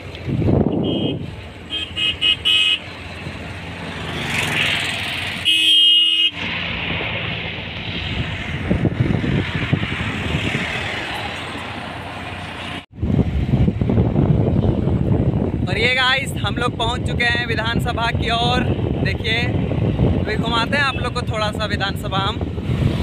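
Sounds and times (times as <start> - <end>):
road and wind noise: 0.0 - 23.0
vehicle horn tooting: 0.7 - 2.9, 5.4 - 6.4.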